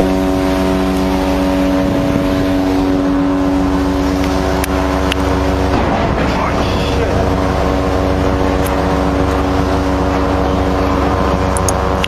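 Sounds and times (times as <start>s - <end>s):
low rumble: 0.0s - 12.0s
ship's horn blast: 0.0s - 12.0s.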